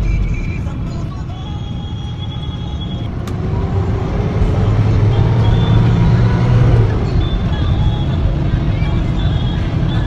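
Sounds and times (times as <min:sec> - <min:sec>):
engine and road noise: 0:00.0 - 0:10.0.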